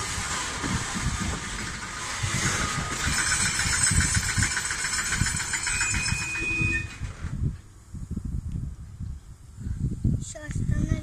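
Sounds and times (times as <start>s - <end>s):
train wheels knocking: 0.6s - 7.0s
high brake squeal: 5.6s - 7.1s.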